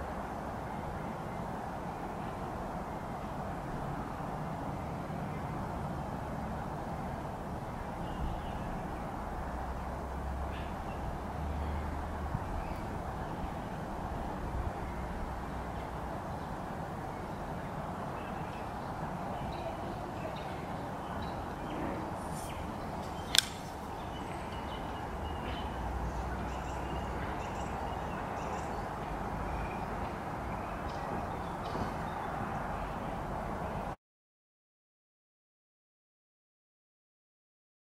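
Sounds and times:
steady outdoor hiss: 0.0 - 34.0
folding knife blade snapping open: 23.3 - 23.7.

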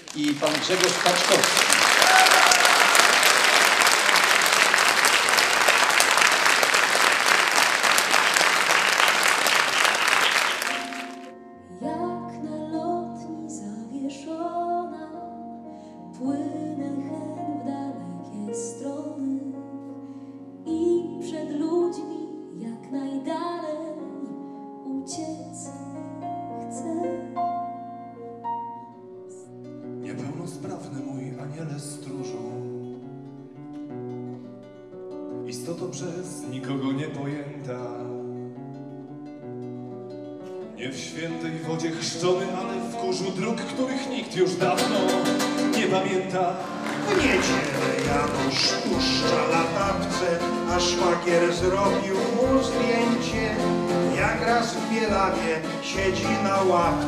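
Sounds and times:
audience applauding: 0.0 - 11.3, 44.6 - 57.0
piano accompaniment: 0.0 - 57.0
woman singing: 11.6 - 15.4, 16.1 - 19.6, 20.7 - 25.8, 26.6 - 27.4.

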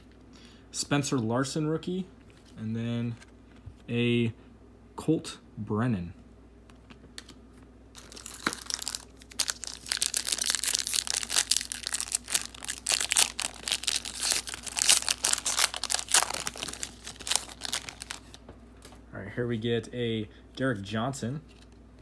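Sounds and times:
foil wrapper crinkling and tearing: 8.0 - 18.4.

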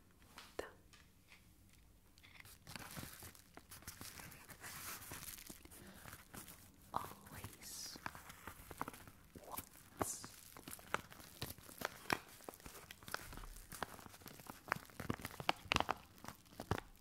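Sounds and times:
paper envelope crinkling: 1.7 - 17.0.

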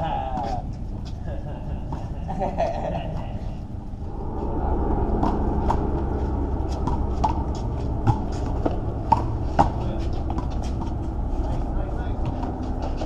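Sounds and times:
steady low rumble: 0.0 - 13.0
players' footsteps: 5.2 - 13.0
ball slapping and rebounding: 6.7 - 11.0.

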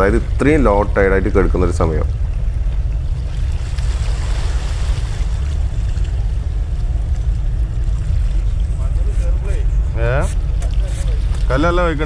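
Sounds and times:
small waves washing on rocks: 3.4 - 6.0.

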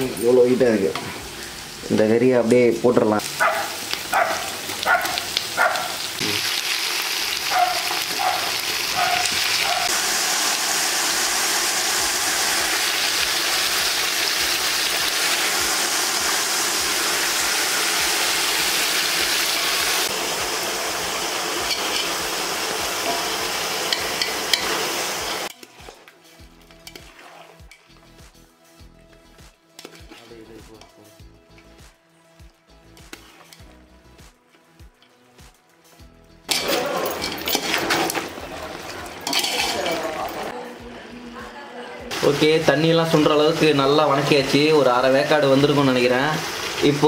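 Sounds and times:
meat sizzling in hot oil: 0.0 - 28.9, 42.1 - 47.0
meat clattering into pot: 36.5 - 40.4.

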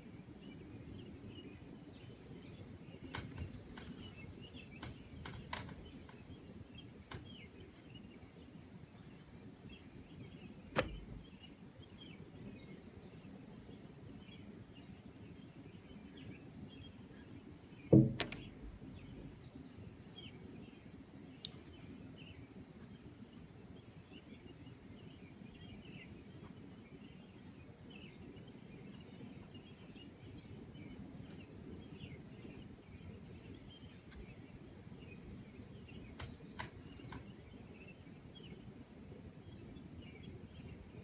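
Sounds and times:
distant birds chirping: 0.2 - 41.0
loud knock: 17.9 - 18.6.

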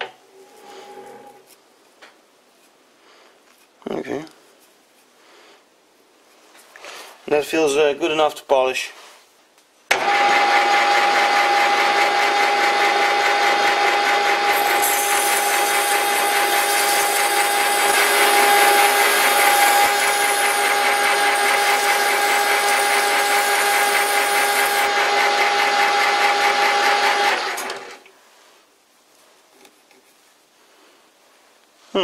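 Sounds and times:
metal lathe running: 10.0 - 27.7
hone hissing on workpiece: 14.5 - 24.8.

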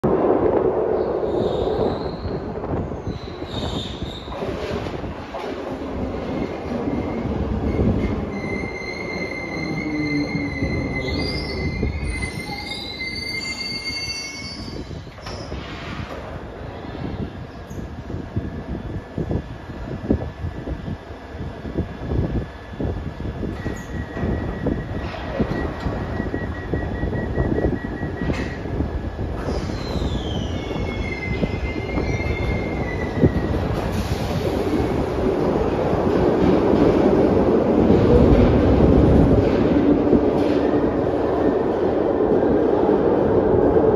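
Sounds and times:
train rumble: 0.0 - 43.9
train wheels squealing: 1.3 - 4.4, 6.3 - 15.7, 23.6 - 28.7, 29.4 - 33.5
rapid high beeping: 26.0 - 28.3.

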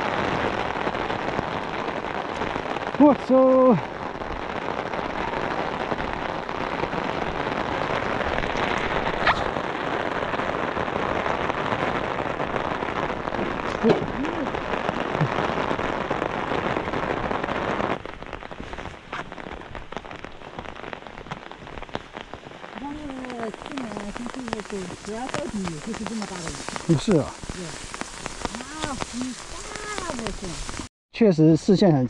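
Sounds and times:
heavy rain falling: 0.0 - 30.9.

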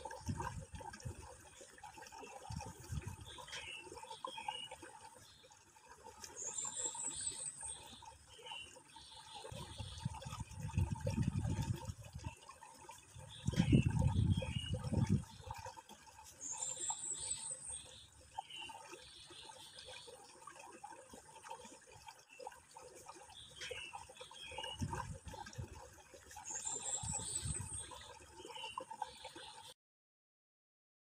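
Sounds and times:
faint trickle of water: 0.0 - 29.8
birds chirping: 16.4 - 20.1, 26.4 - 29.6.

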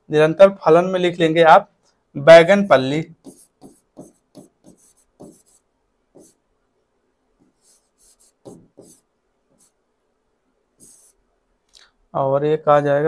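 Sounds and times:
chalk scratching on blackboard: 3.0 - 6.4, 7.4 - 9.8, 10.8 - 11.2.

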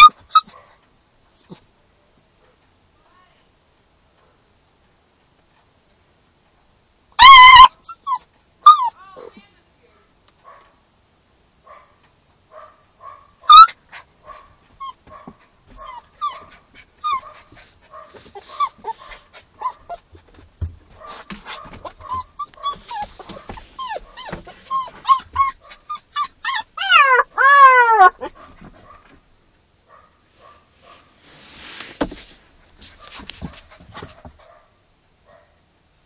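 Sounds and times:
puppy howling: 0.0 - 0.5, 7.2 - 9.0, 13.4 - 13.8, 21.8 - 28.3
puppy whining and yelping: 0.0 - 0.6, 1.3 - 1.6, 7.2 - 9.0, 13.4 - 28.5, 33.0 - 34.2.

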